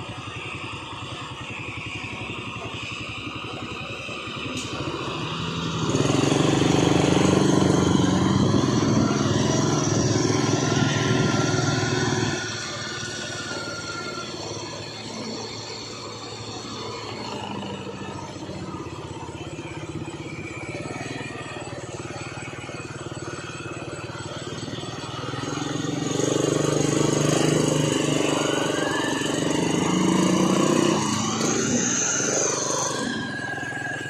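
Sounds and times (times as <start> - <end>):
diesel truck engine: 0.0 - 34.0.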